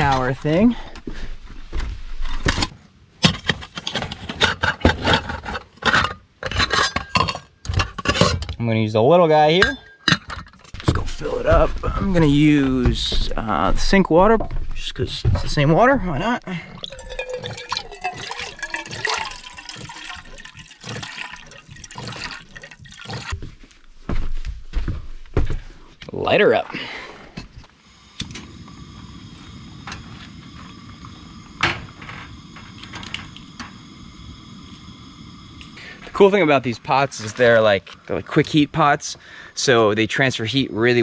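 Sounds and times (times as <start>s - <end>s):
cooking pots knocking and clinking: 3.2s - 8.6s, 16.8s - 23.4s.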